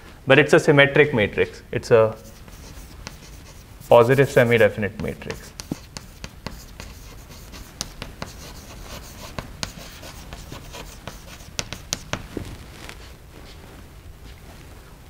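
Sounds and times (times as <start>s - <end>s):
chalk scratching on blackboard: 2.2s - 12.3s.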